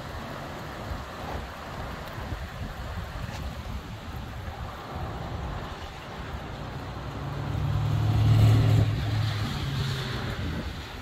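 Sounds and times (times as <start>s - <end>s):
gusty wind: 0.0s - 11.0s
rain: 0.0s - 11.0s
vehicle passing: 6.4s - 11.0s.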